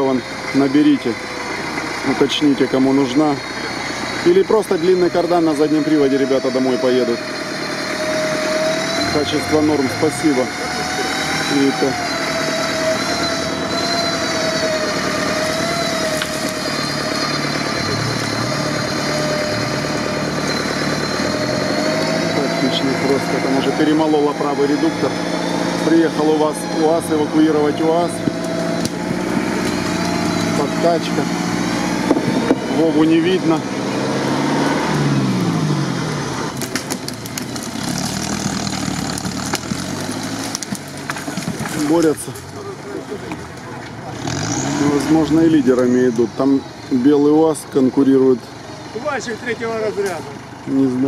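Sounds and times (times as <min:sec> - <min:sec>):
high whine: 0:00.0 - 0:34.0
buggy engine under load: 0:00.0 - 0:51.0
sharp clicks and cracks: 0:28.3 - 0:29.8, 0:36.6 - 0:42.5.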